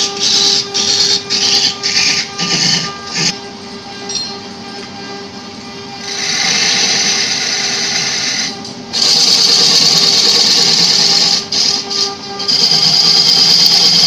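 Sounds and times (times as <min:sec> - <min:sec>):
chisel scraping spinning wood: 0:00.0 - 0:03.4, 0:06.0 - 0:08.1, 0:12.5 - 0:14.0
wood lathe humming: 0:00.0 - 0:14.0.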